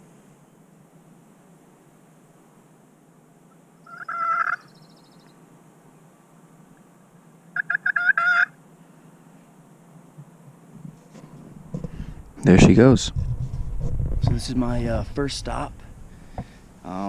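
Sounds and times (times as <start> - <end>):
turkey call yelps: 3.8 - 5.2, 7.6 - 8.6.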